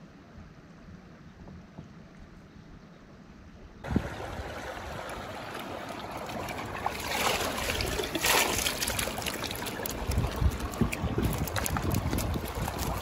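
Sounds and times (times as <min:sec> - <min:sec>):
creek water trickling over rocks: 0:03.8 - 0:13.0.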